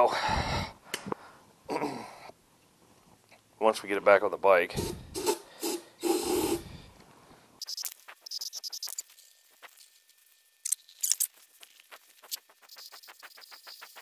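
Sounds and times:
aerosol spray hissing: 0:04.8 - 0:06.6.

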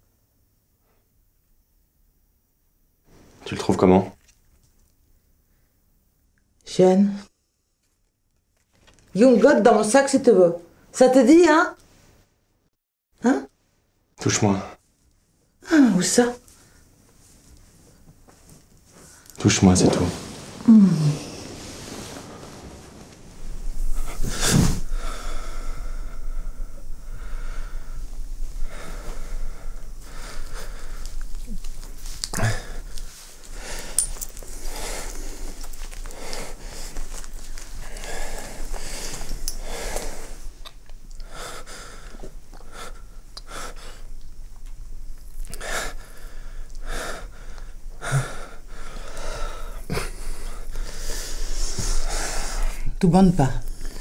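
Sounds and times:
steady low hum: 0:14.1 - 0:54.0
close breathing and sighs: 0:18.8 - 0:40.6, 0:41.2 - 0:44.1, 0:45.4 - 0:53.0
person breathing heavily: 0:18.9 - 0:31.2
low voiced sound: 0:19.4 - 0:23.1.

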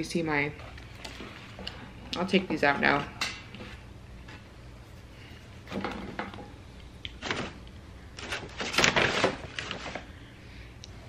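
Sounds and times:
paper wrappers rustling: 0:07.1 - 0:10.2.

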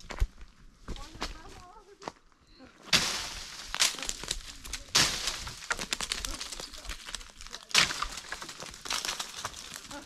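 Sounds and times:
pole striking branches: 0:02.9 - 0:06.4, 0:07.5 - 0:09.4
acorns dropping on stony ground: 0:02.9 - 0:10.0.

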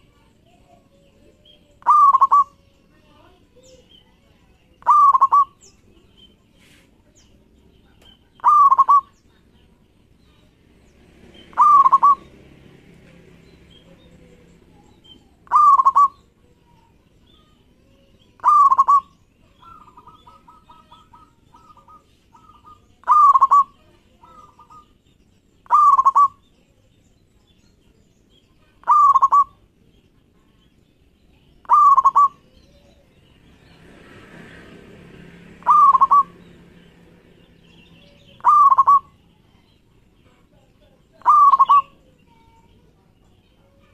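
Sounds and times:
dove cooing: 0:01.7 - 0:02.6, 0:04.8 - 0:05.6, 0:08.3 - 0:09.2, 0:11.3 - 0:12.3, 0:13.9 - 0:16.6, 0:18.3 - 0:24.9, 0:25.6 - 0:26.4, 0:28.8 - 0:29.6, 0:31.6 - 0:33.0, 0:35.6 - 0:36.4, 0:38.1 - 0:39.2, 0:41.1 - 0:42.1.

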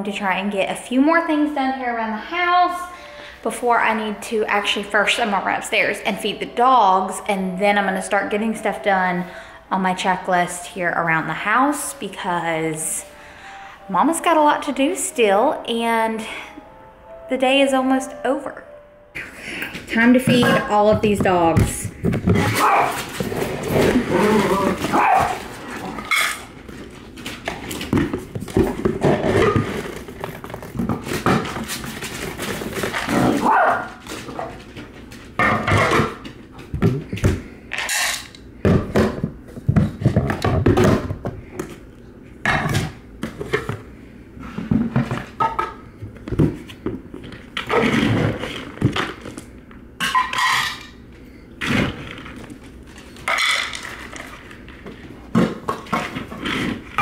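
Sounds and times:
dogs barking: 0:22.4 - 0:23.1, 0:24.8 - 0:25.5, 0:33.4 - 0:34.0.

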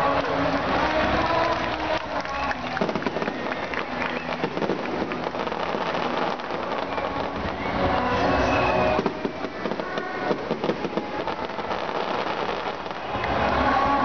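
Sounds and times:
firework shells crackling: 0:00.0 - 0:14.0.

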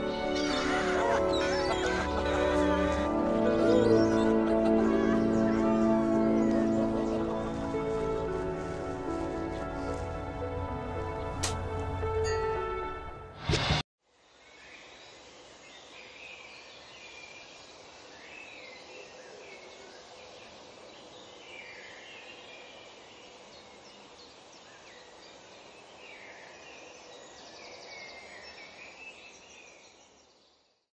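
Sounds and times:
birds chirping: 0:00.0 - 0:12.4.

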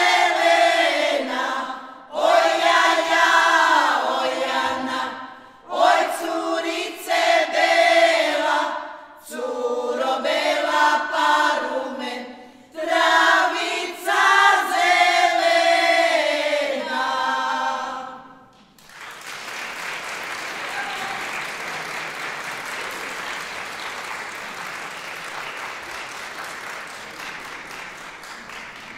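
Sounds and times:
women's group singing unaccompanied: 0:00.0 - 0:18.6
audience applause: 0:18.7 - 0:28.9.

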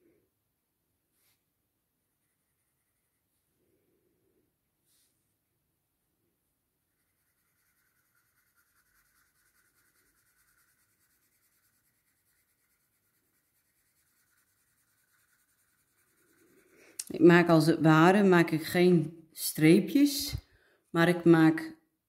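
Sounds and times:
faint pencil scratching on paper: 0:02.1 - 0:03.6, 0:06.8 - 0:17.0.

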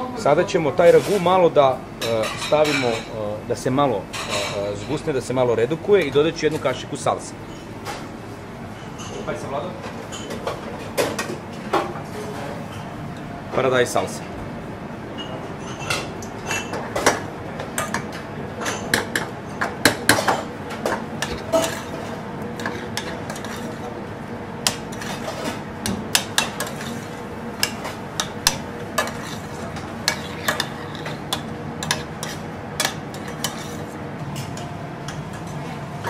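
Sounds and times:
kitchen hum: 0:00.0 - 0:36.0
metal spoon scraping saucepan: 0:21.2 - 0:23.9, 0:24.9 - 0:25.6, 0:26.4 - 0:34.0.

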